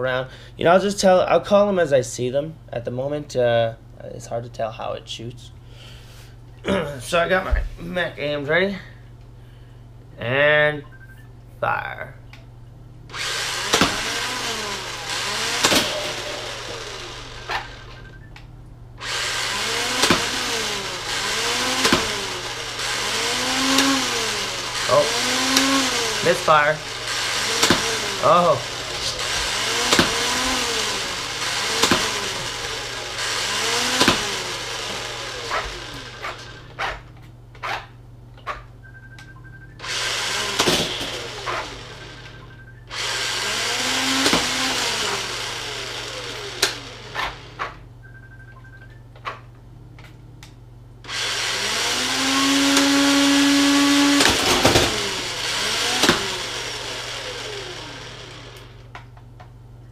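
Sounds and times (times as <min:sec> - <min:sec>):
toy blaster motor whirring: 0:13.1 - 0:18.1, 0:19.0 - 0:36.8, 0:39.8 - 0:47.7, 0:51.1 - 0:58.8.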